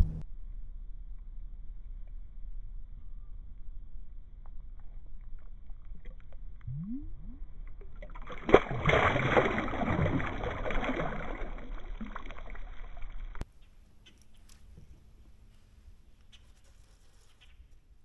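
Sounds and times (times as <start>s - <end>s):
water churning and splashing: 5.3s - 13.4s.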